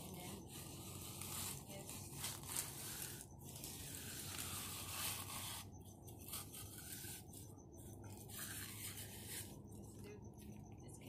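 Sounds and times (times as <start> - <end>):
concrete edger scraping concrete: 0.0 - 7.3.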